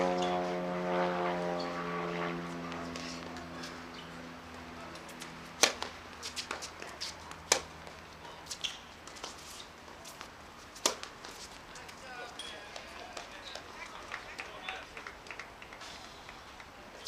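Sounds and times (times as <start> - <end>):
engine drone: 0.0 - 6.0
tennis ball hit by racket: 5.2 - 7.8, 8.5 - 11.5.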